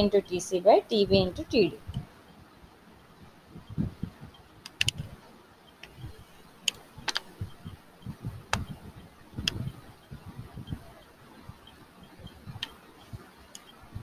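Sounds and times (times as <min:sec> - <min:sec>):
soft low thumps: 0:03.5 - 0:04.4, 0:07.3 - 0:13.3
sharp clicks: 0:04.6 - 0:05.1, 0:06.6 - 0:07.7, 0:08.5 - 0:08.8.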